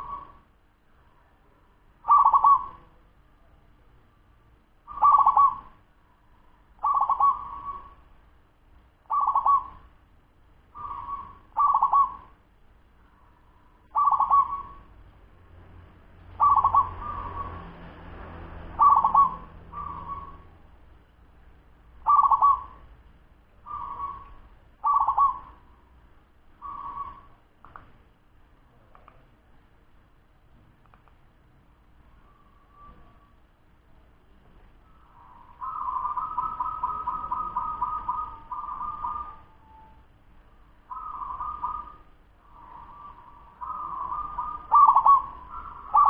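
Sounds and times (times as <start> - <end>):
zebra dove cooing: 0.0 - 0.4, 2.0 - 3.0, 4.9 - 5.8, 6.8 - 8.0, 9.1 - 9.9, 10.7 - 12.4, 13.9 - 14.9, 16.4 - 17.6, 18.8 - 20.5, 22.0 - 22.8, 23.6 - 25.7, 26.6 - 27.4, 34.9 - 40.0, 40.9 - 46.0.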